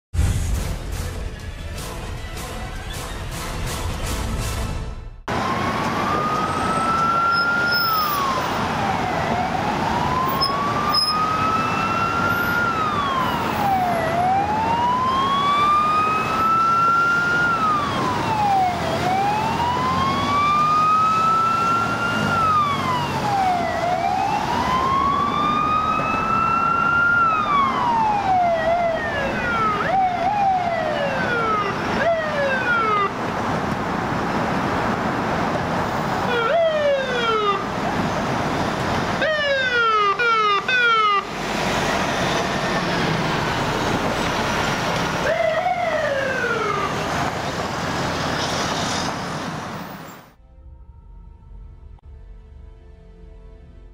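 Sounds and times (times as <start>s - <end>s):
traffic noise: 0.2s - 53.9s
fire engine siren wailing: 5.3s - 33.3s, 35.9s - 48.2s.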